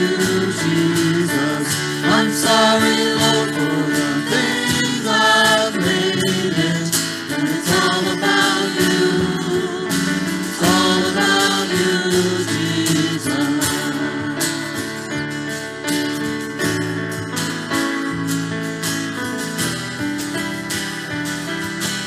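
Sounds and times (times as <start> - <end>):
voices singing: 0.0 - 14.6
keyboard: 0.0 - 22.0
strummed acoustic guitars: 0.0 - 22.0.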